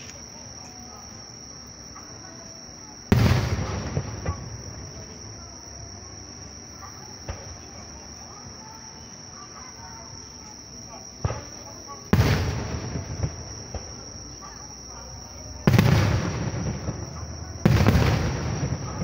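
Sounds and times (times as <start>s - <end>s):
insects chirring: 0.0s - 19.0s
firework boom: 3.1s - 4.9s, 12.1s - 14.0s, 15.6s - 19.0s.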